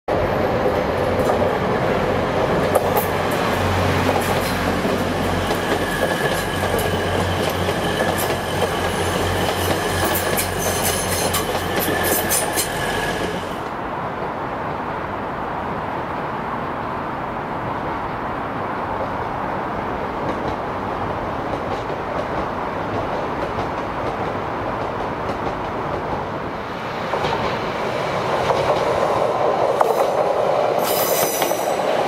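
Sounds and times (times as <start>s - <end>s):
train rumble: 0.1s - 32.0s
train wheels clicking over rail joints: 2.6s - 13.8s, 21.4s - 26.3s, 27.0s - 32.0s.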